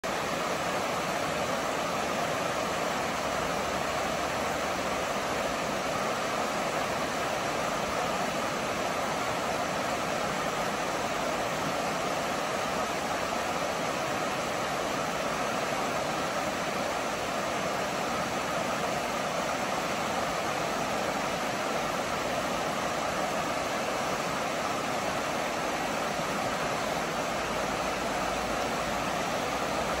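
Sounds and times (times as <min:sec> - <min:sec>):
river rapids rushing over rocks: 0:00.0 - 0:30.0.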